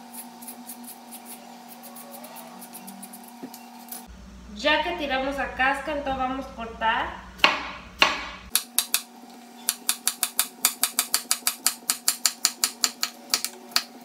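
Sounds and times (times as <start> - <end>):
knife chopping on wooden board: 7.4 - 9.0.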